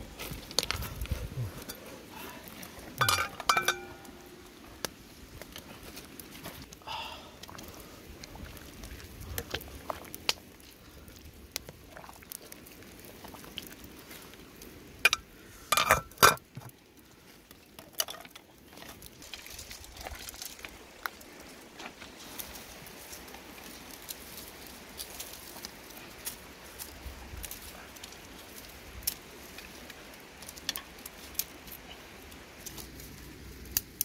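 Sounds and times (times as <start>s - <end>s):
pot lid clattering: 3.0s - 4.0s, 15.8s - 16.4s.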